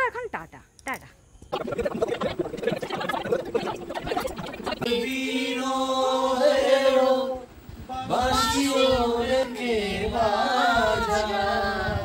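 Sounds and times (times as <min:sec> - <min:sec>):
overlapping voices: 0:01.5 - 0:07.2
person singing unaccompanied: 0:01.6 - 0:12.0.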